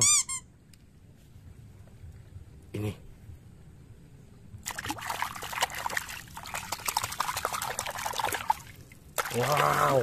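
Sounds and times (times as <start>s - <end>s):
shallow water splashing: 4.6s - 10.0s.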